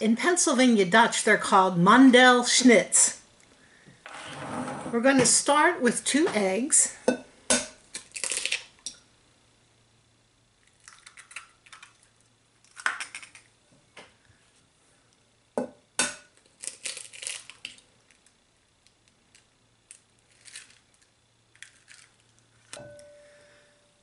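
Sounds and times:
eggshells cracking: 7.9s - 8.8s, 10.6s - 13.5s, 16.4s - 22.8s.

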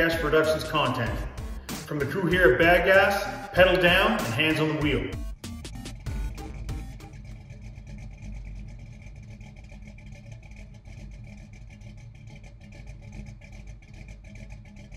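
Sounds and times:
car engine running: 0.0s - 14.9s.

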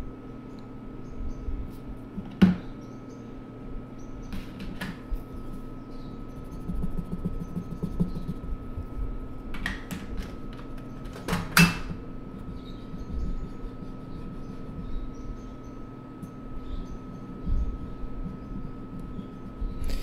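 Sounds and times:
faint steady hum: 0.0s - 20.0s
colour stick scribbling on paper: 6.3s - 8.6s, 12.5s - 15.0s.

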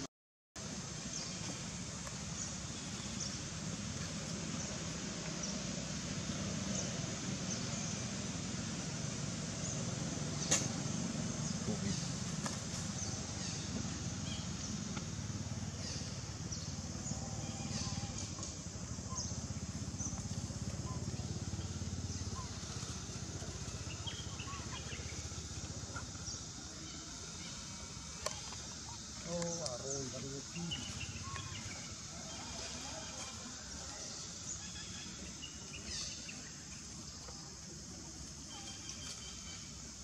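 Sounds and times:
outdoor background rumble: 0.6s - 40.0s
sharp click: 10.5s - 10.7s.

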